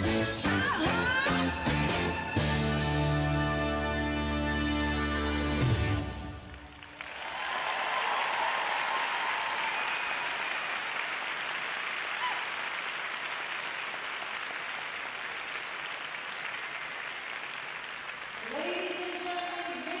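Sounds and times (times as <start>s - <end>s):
audience applauding: 5.6s - 20.0s.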